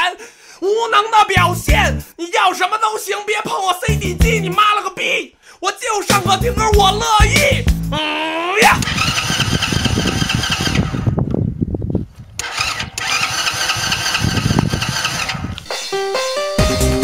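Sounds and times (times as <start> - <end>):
moped engine running: 8.8 - 11.0, 12.4 - 15.5.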